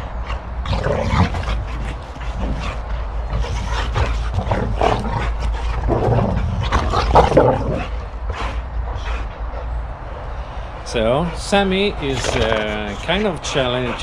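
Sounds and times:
dogs growling in play: 0.0 - 14.0.

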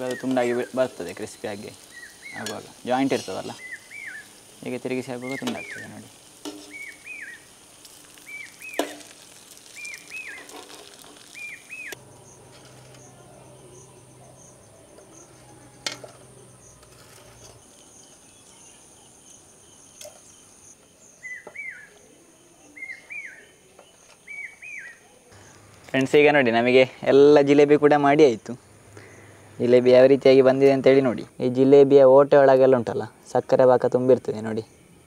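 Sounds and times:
bird chirping: 0.0 - 7.5, 8.2 - 8.9, 9.7 - 10.5, 11.3 - 25.7
oil sizzling in a pan: 0.0 - 20.8
faint high insect trill: 0.0 - 31.9.

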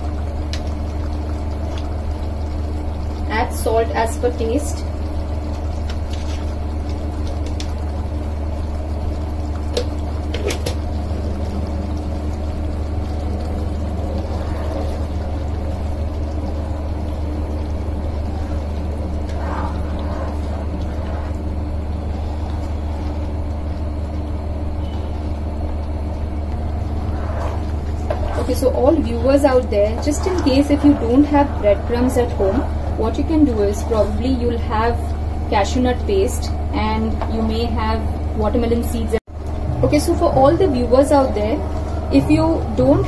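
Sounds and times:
low machine hum: 0.0 - 43.0
ladle stirring thick gravy: 13.1 - 23.8.

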